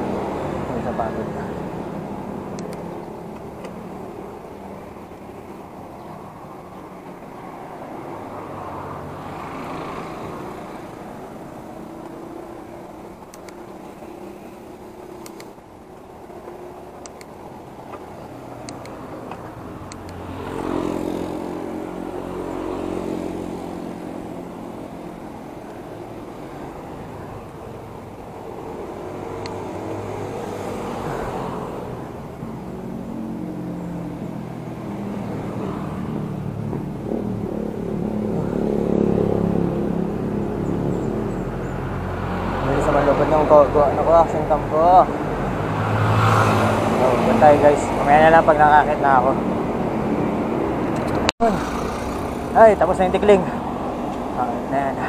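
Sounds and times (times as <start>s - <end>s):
motor traffic: 0.0s - 55.0s
vehicle engine passing: 0.0s - 55.0s
wind and road noise: 0.0s - 55.0s
sharp clicks: 2.5s - 3.8s, 13.2s - 13.8s, 15.1s - 15.6s, 16.9s - 20.2s, 29.4s - 29.6s
light click: 2.6s - 2.8s, 13.3s - 13.6s, 15.2s - 15.5s, 18.6s - 19.0s.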